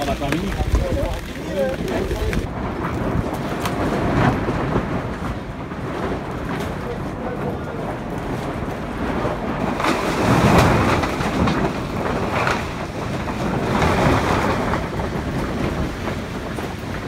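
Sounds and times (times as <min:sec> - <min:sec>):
plastic tarp rustling: 0:00.0 - 0:07.1, 0:08.4 - 0:17.0
wind buffeting microphone: 0:00.0 - 0:17.0.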